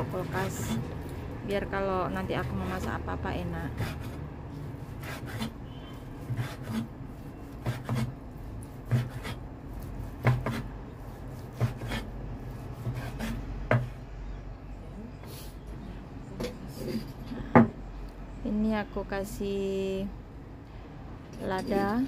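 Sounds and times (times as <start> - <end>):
cleaver chopping on wooden board: 7.6 - 8.1, 8.9 - 9.4, 10.2 - 10.7, 11.5 - 12.1, 12.8 - 14.0.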